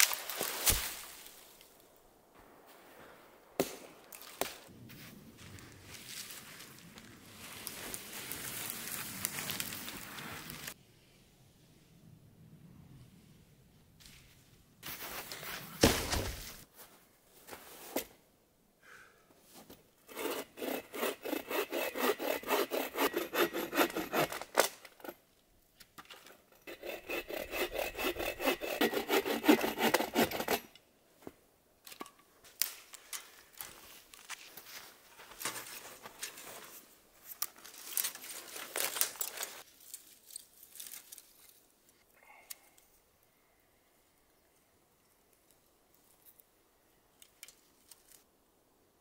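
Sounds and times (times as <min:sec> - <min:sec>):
rustles: 0:00.0 - 0:18.2, 0:32.4 - 0:48.3
hand saw cutting wood: 0:20.1 - 0:25.2, 0:26.5 - 0:30.7.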